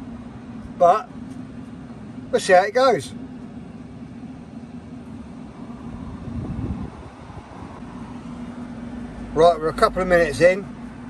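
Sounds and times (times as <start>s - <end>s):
appliance electrical hum: 0.0s - 11.0s
low rumble: 4.8s - 9.4s.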